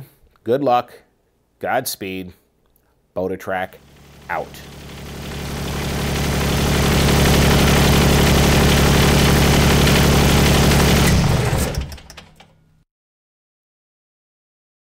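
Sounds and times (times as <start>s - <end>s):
engine running: 3.8s - 12.5s.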